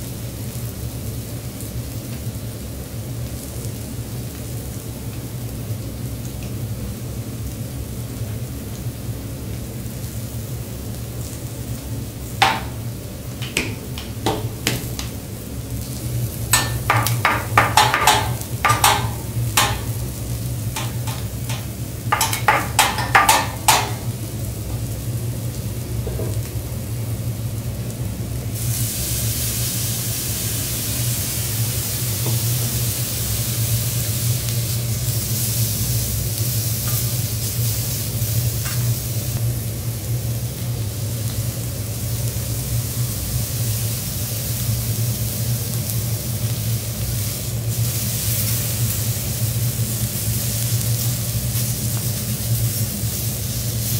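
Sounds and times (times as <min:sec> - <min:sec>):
loud even sizzle: 0:00.0 - 0:53.9
seafood frying on a griddle: 0:00.0 - 0:53.9
seasoning shaker clicks and rattles: 0:12.4 - 0:24.4
steady low hum: 0:12.4 - 0:26.4.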